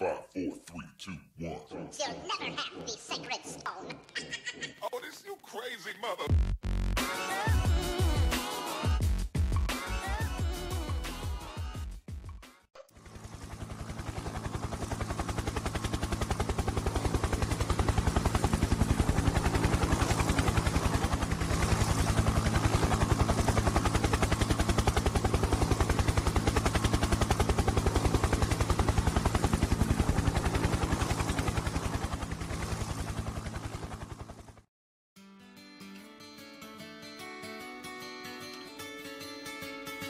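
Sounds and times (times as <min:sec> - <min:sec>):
helicopter engine drone: 0:12.8 - 0:34.7
helicopter rotor beat: 0:12.8 - 0:34.7.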